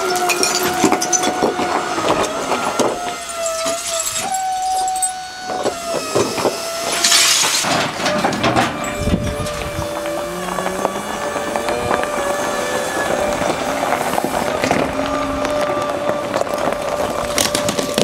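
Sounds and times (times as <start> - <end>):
rush of falling debris: 0.0 - 5.1, 5.7 - 18.0
rubble clattering: 0.0 - 6.4, 12.9 - 18.0
loader engine whine: 0.0 - 18.0.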